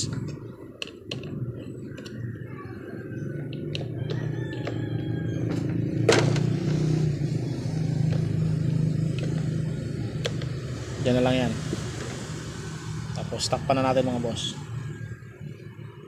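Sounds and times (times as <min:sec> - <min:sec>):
plastic housing clicks and taps: 0:00.8 - 0:01.3
steady low hum: 0:06.2 - 0:16.0.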